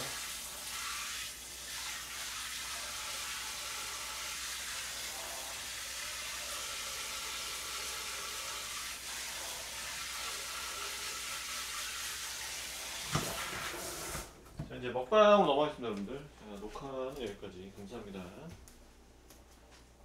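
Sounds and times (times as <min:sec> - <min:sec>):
tap water filling a pan: 0:00.0 - 0:14.3.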